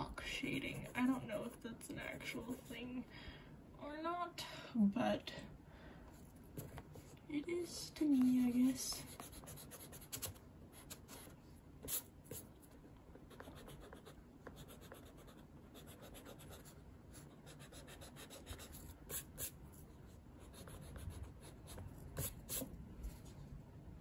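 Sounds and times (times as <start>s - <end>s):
pencil scratching on paper: 8.1s - 12.4s, 13.3s - 19.6s, 20.4s - 22.7s.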